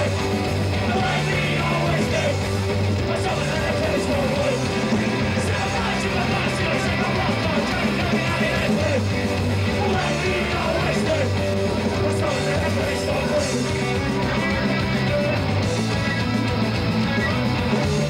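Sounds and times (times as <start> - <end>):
people singing into microphones: 0.0 - 14.0
electric guitar: 0.0 - 18.0
live rock band playing: 0.0 - 18.0.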